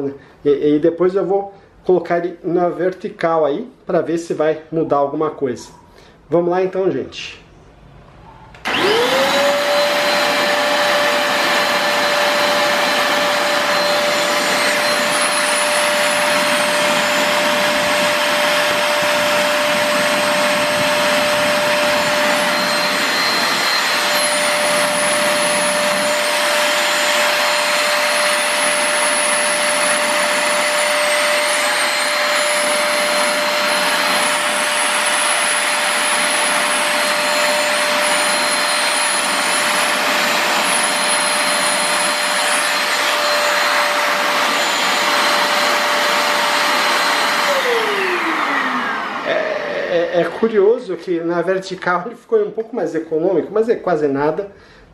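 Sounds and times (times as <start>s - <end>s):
vacuum cleaner motor whine: 8.6s - 50.4s.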